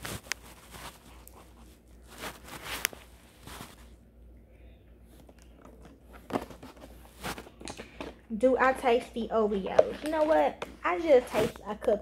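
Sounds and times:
plastic container rustling: 0:00.0 - 0:04.0, 0:05.3 - 0:08.2, 0:09.3 - 0:11.8.

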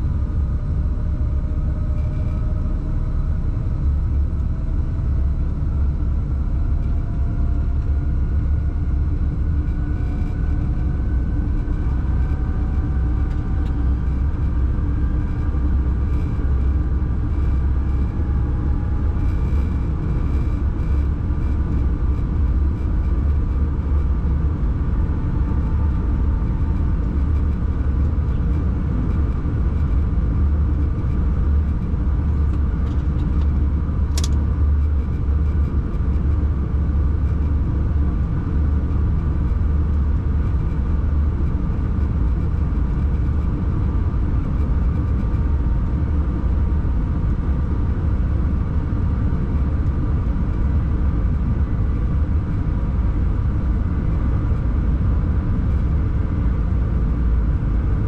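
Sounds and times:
faint steady whine: 0:00.0 - 0:58.0
locomotive low rumble: 0:00.0 - 0:58.0
sharp click: 0:34.1 - 0:34.4.

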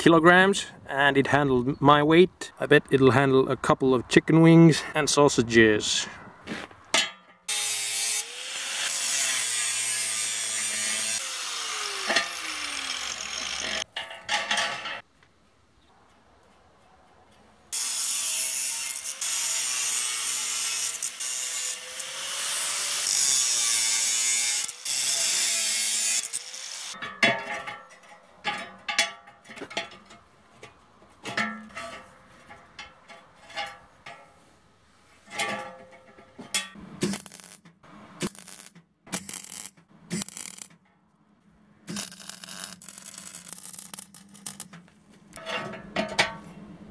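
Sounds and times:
angle grinder cutting steel: 0:07.5 - 0:13.9, 0:17.7 - 0:27.0, 0:38.2 - 0:40.7, 0:41.9 - 0:44.7.

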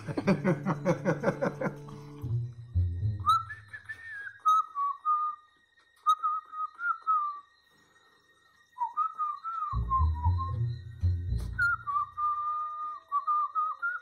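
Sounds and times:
person whistling a tune: 0:03.1 - 0:07.5, 0:08.8 - 0:14.0.

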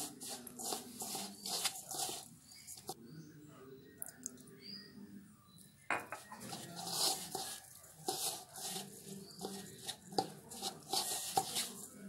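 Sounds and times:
hand mixing flour scraping swish: 0:00.0 - 0:03.0, 0:06.4 - 0:12.0.

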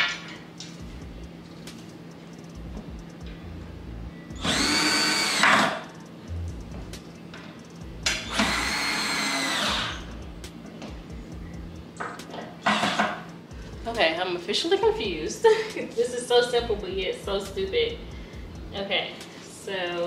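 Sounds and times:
cordless drill whining: 0:04.4 - 0:05.8, 0:08.3 - 0:10.1.

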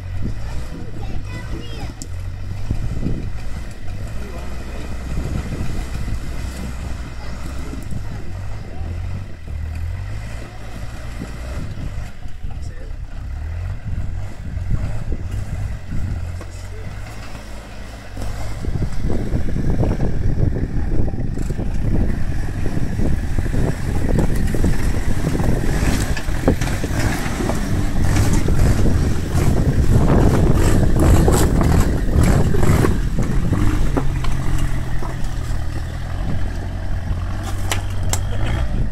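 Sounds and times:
pickup engine revving: 0:00.0 - 0:38.9.

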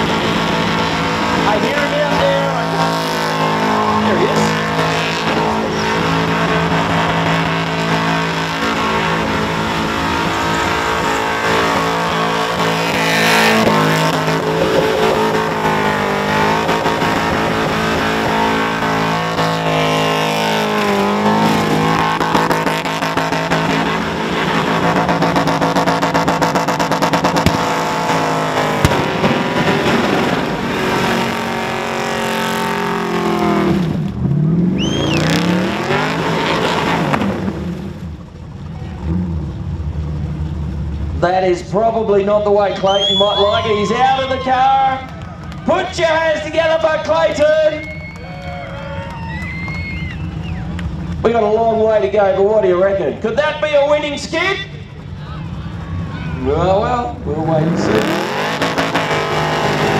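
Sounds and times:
car engine at high revs: 0:00.0 - 0:41.2, 0:54.8 - 0:59.9
spinning tyres screeching: 0:00.0 - 0:59.9.

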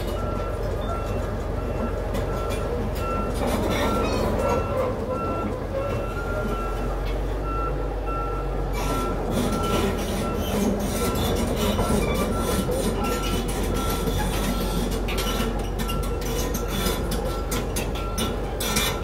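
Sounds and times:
steel tracks clanking on paving: 0:00.0 - 0:07.4, 0:08.6 - 0:19.0
diesel engine running: 0:00.0 - 0:19.0.

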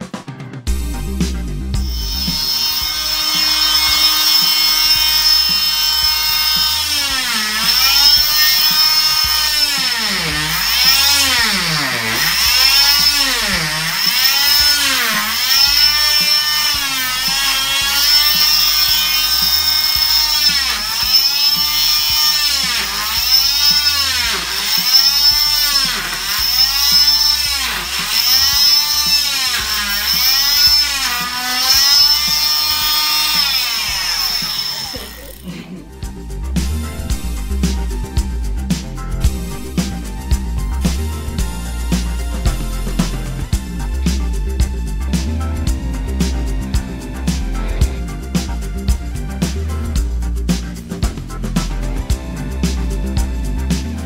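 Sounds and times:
cast saw motor whine: 0:01.4 - 0:35.6.

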